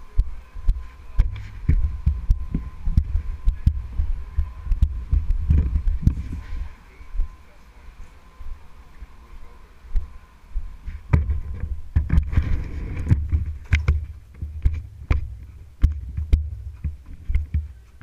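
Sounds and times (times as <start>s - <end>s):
sharp knocks: 11.1s - 17.7s.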